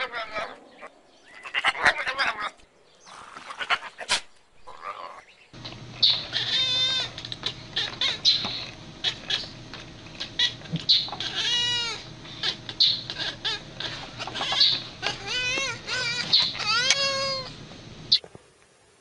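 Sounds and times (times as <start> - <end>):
cat meowing: 6.0 - 9.6, 10.2 - 17.6.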